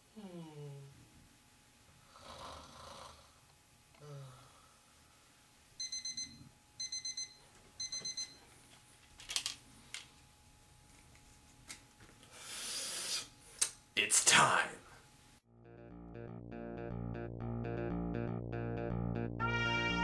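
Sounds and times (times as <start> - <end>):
man snoring: 2.1 - 3.4, 4.0 - 4.6
alarm clock beeping: 5.8 - 8.4.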